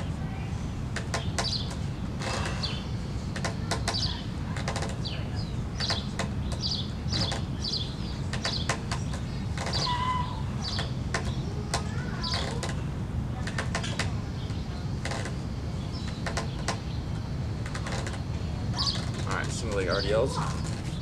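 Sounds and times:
low outdoor rumble: 0.0 - 21.0
small birds chirping: 0.0 - 21.0.

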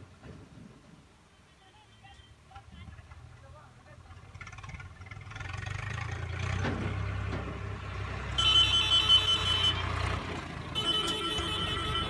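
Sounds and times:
tractor diesel engine running: 3.1 - 12.0.

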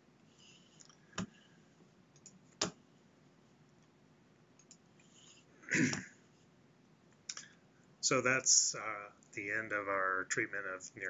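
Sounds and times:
breathy noise close to microphone: 0.2 - 1.9.

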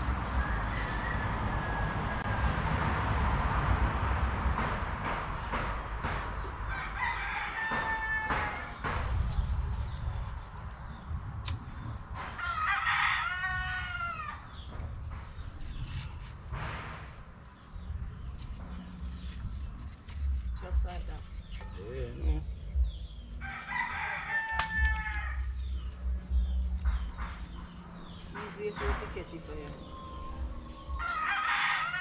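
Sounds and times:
rooster crowing: 0.0 - 2.8, 6.7 - 8.8, 12.4 - 14.5, 23.4 - 25.5, 30.0 - 32.0.

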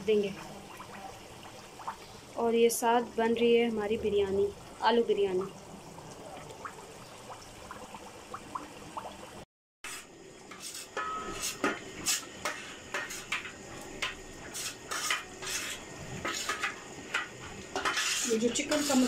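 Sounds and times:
curry bubbling: 0.0 - 9.5, 10.1 - 19.0
ladle scraping metal pot: 9.9 - 19.0.

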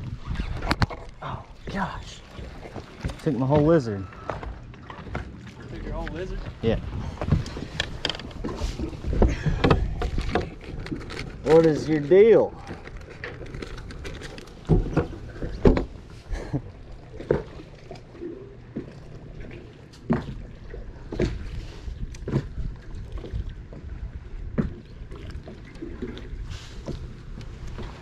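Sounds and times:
knocks and thumps on boat deck: 0.0 - 11.0, 14.6 - 16.1, 20.0 - 20.5, 21.1 - 21.5, 22.2 - 24.9
fishing gear bumping hull: 0.0 - 28.0.

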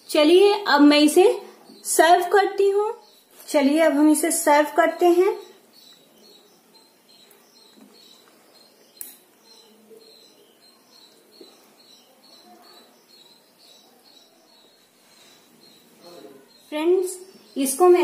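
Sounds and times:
high chirping: 0.0 - 18.0.

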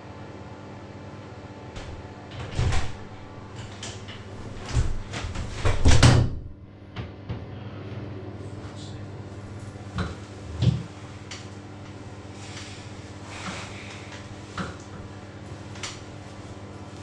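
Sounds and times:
steady low hum: 0.0 - 17.0
door opening: 1.8 - 6.5
knocks and bumps: 4.5 - 6.5.

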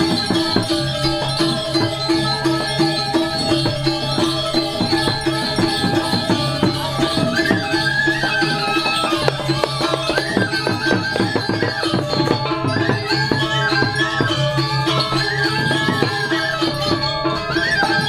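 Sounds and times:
ringing bronze metallophones: 0.0 - 18.0
fast drum strokes: 3.3 - 13.3.

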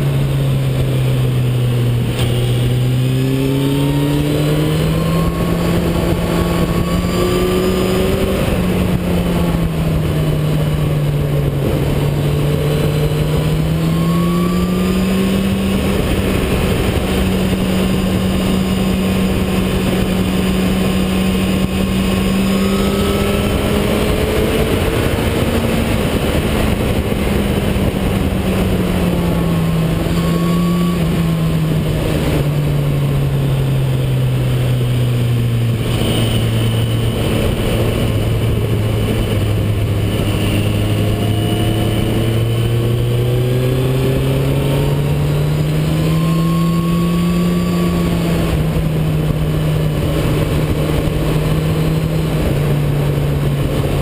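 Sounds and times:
motorcycle engine running: 0.0 - 54.0
wind noise: 0.0 - 54.0.

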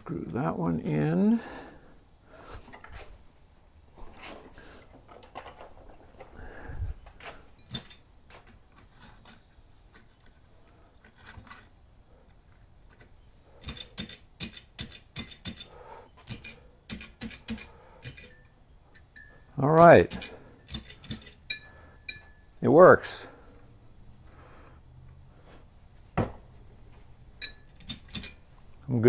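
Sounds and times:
light bulbs screwed into sockets: 12.9 - 22.2.

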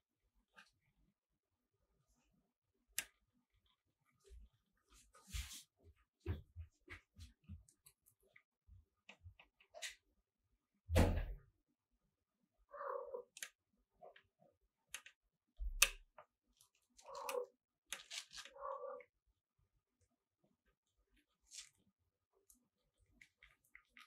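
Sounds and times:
kittens rustling on bedding: 4.3 - 7.8.

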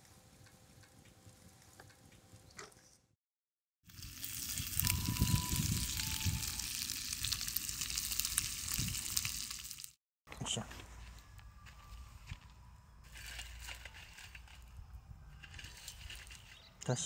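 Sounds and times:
bacon sizzling in a skillet: 3.9 - 10.0.

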